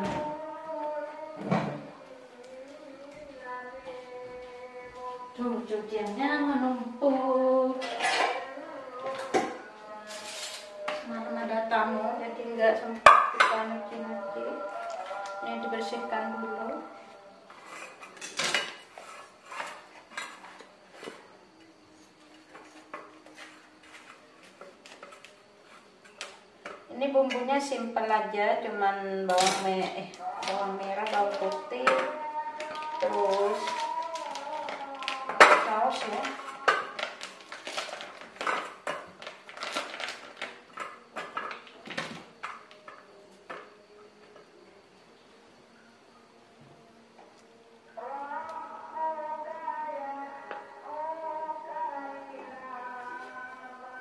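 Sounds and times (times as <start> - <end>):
knife scraping ceramic plate: 17.5 - 21.2
plastic packet crinkling: 32.6 - 41.8.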